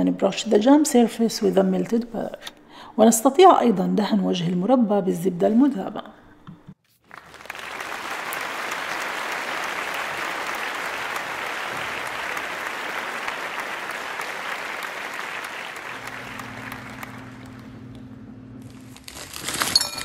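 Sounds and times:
applause: 7.0 - 18.0.

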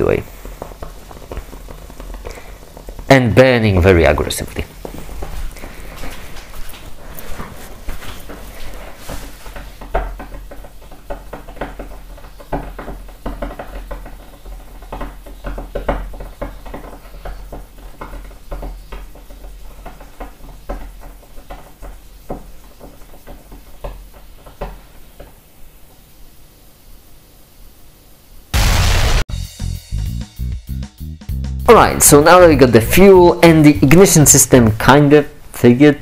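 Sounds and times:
crackling and sputtering reaction: 0.0 - 24.6, 28.4 - 29.3.

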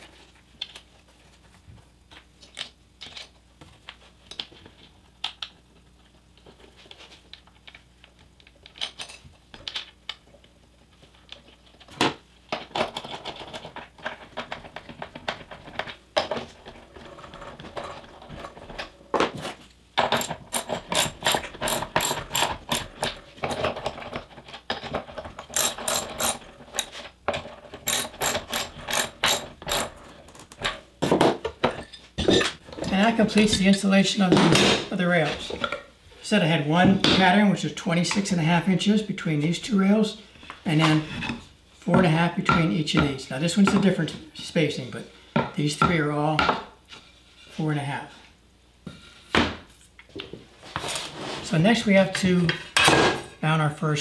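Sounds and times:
ratchet wrench clicking: 20.2 - 23.0, 25.5 - 26.9, 27.8 - 29.9
metal washers and nuts clinking: 27.8 - 30.0.

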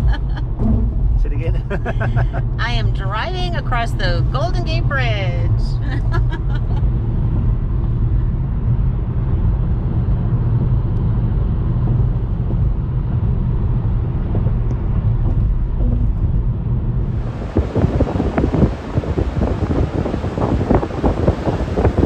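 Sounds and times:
car cabin road rumble: 0.0 - 22.0
wind on microphone: 0.0 - 22.0
breaking surf: 17.1 - 22.0.

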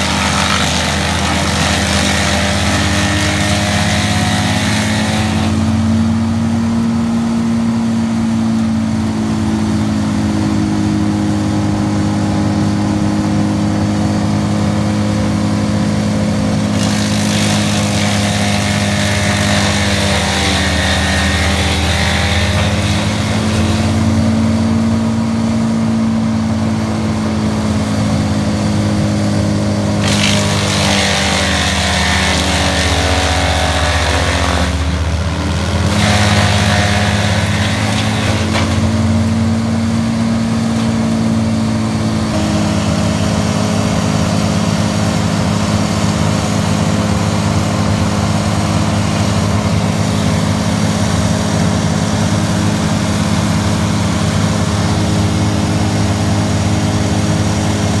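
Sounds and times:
branches grinding in chipper: 0.0 - 6.3, 16.2 - 24.8, 29.2 - 58.0
tree chipper engine running: 0.0 - 58.0.

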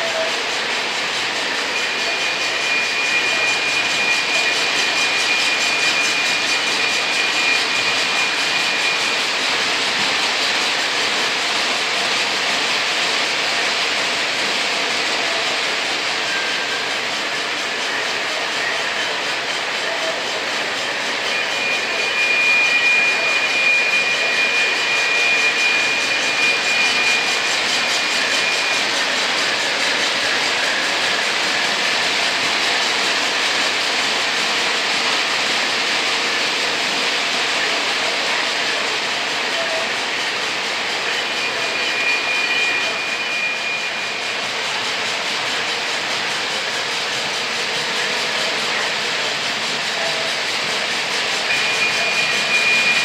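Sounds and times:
model trains rumbling and whirring: 0.0 - 53.0
thin high tone: 39.5 - 44.7, 47.9 - 53.0.

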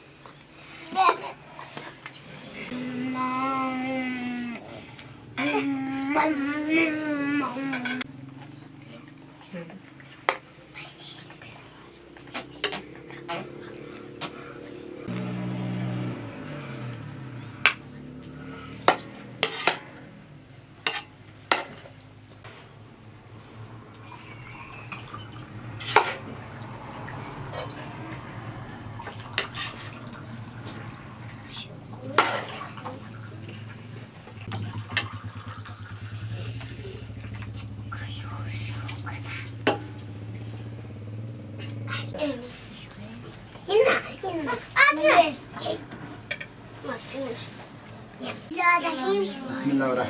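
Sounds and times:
low hum: 22.9 - 42.1.

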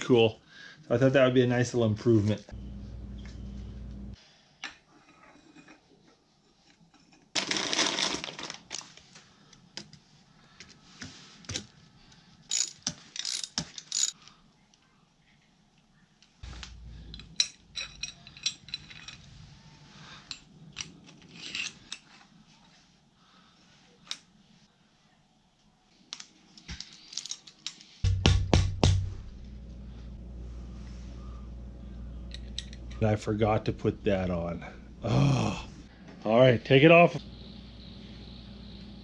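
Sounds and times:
metal tools clinking: 12.5 - 14.3, 17.0 - 19.4, 20.2 - 22.3, 26.9 - 27.8.

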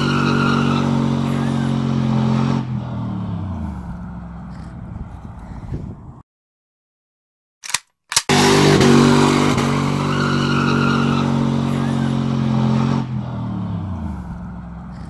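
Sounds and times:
truck exhaust revving high: 8.3 - 15.0.

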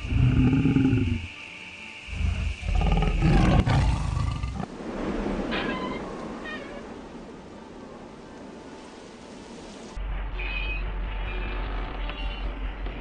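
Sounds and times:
lion roaring: 0.0 - 1.3, 2.1 - 4.7.

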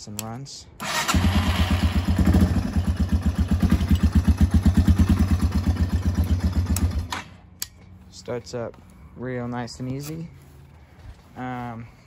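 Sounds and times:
dirt bike engine idling: 1.1 - 7.1.

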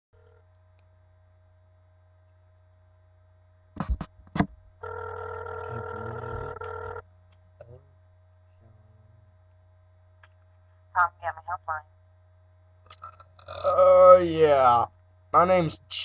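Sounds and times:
telephone ringback tone: 4.8 - 7.0.

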